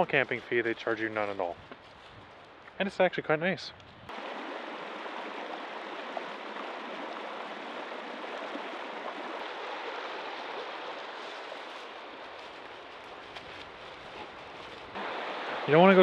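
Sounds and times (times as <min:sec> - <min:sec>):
creek rushing over stones: 0:04.1 - 0:16.0.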